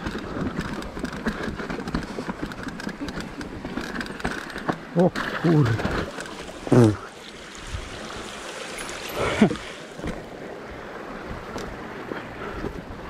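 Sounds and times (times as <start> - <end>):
bike rattling over ground: 0.0 - 10.6.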